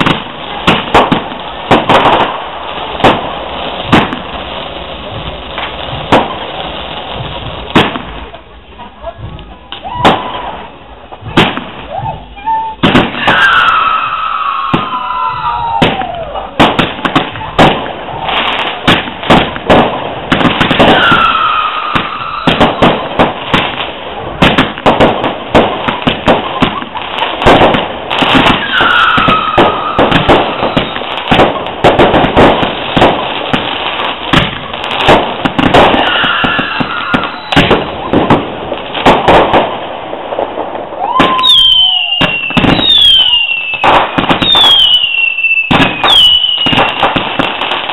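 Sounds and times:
fireworks bangs and crackles: 0.0 - 47.9
firework whistles gliding down: 11.8 - 16.6, 20.6 - 23.0, 28.1 - 31.2, 35.7 - 38.4, 40.9 - 47.2.

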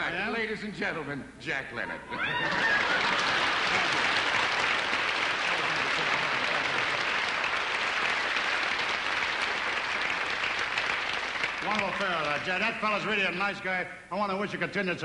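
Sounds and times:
audience applauding: 2.2 - 13.1.

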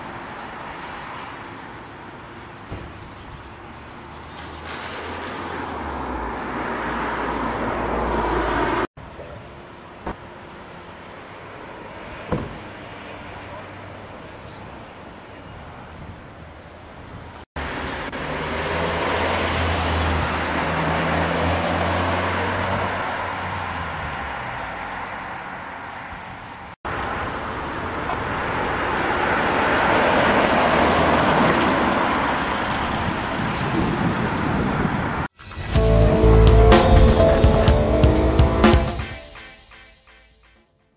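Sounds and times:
cars driving past: 4.2 - 8.9, 17.5 - 39.3.

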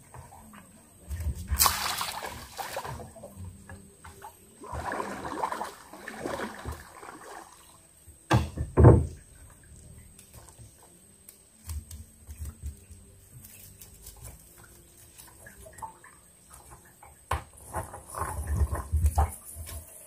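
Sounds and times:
water splashing: 1.3 - 3.5, 4.5 - 7.8
knocks and thumps: 8.3 - 9.2.

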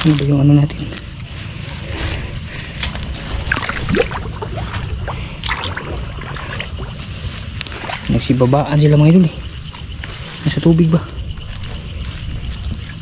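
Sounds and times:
insects trilling: 0.0 - 13.0
footsteps squelching through mud: 2.4 - 10.8
water splashing: 3.1 - 8.6.

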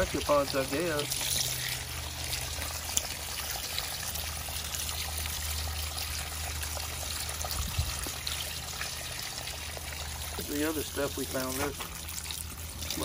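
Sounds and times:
running water trickling: 0.0 - 13.0.

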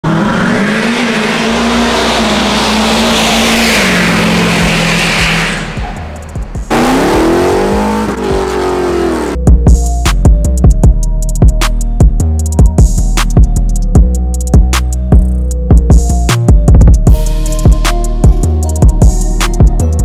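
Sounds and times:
car engine revving: 0.0 - 9.4.

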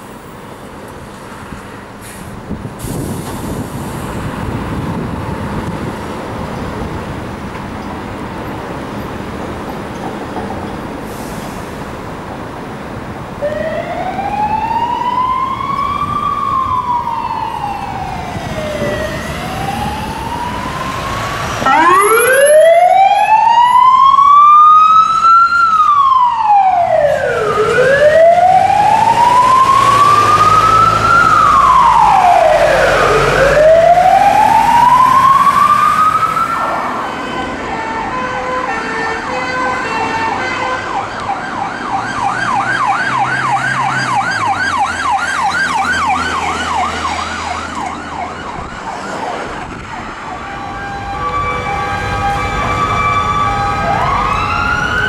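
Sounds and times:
fire engine siren wailing: 13.2 - 55.0
siren with short stepped tones: 13.4 - 38.2.

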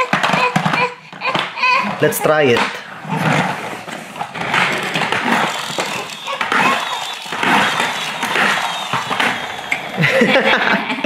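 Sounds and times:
toy wheels rolling on wooden floor: 0.0 - 11.0
friction motor gears whirring: 3.0 - 10.4.

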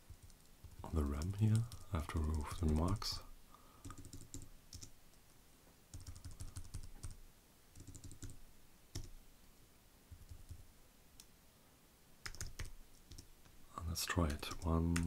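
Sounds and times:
computer keyboard keystrokes: 3.8 - 4.9, 5.9 - 7.2, 7.8 - 8.4, 9.0 - 9.2, 12.2 - 13.3.

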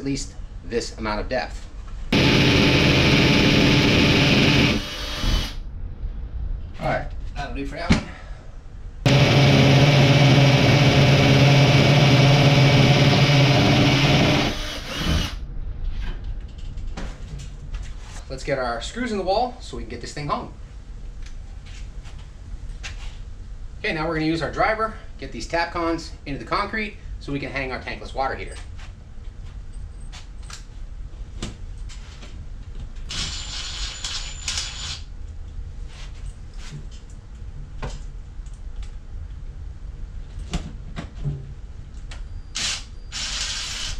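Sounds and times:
cordless driver whining: 2.2 - 5.6, 9.1 - 15.4
hammer drill boring into concrete: 2.2 - 5.6, 9.1 - 15.4, 33.1 - 35.0, 42.6 - 43.9.

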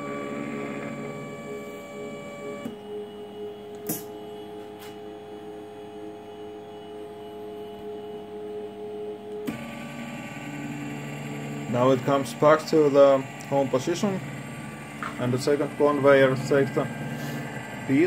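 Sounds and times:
stepper motors whining: 0.0 - 4.1, 9.0 - 18.0
sharp click: 3.8 - 4.1.

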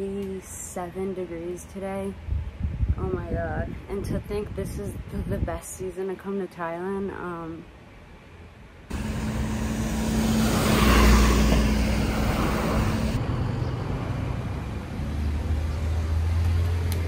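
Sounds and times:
road traffic noise: 8.0 - 17.0
low hum: 8.9 - 14.8
car passing close by: 8.9 - 16.9.

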